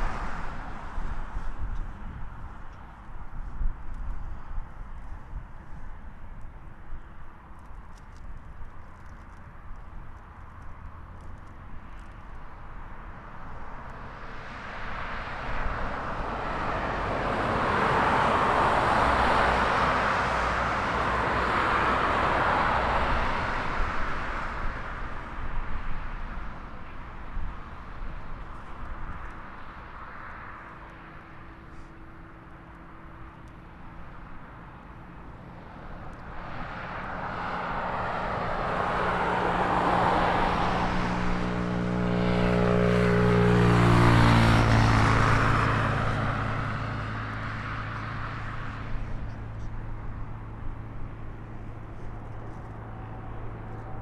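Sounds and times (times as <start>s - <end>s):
aircraft whoosh passing: 35.4s - 49.6s.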